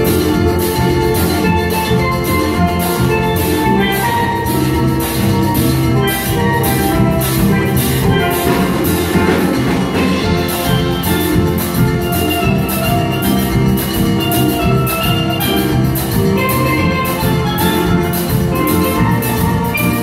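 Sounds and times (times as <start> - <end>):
drum kit steady beat: 0.0 - 20.0
steel pans playing melody: 0.0 - 20.0.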